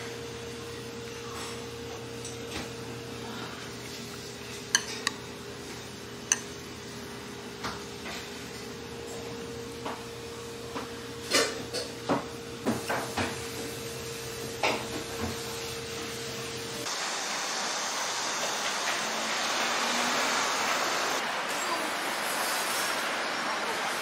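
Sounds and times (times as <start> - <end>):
appliance hum: 0.0 - 24.0
chopsticks tapping ceramic plates: 4.6 - 5.3, 6.2 - 6.6.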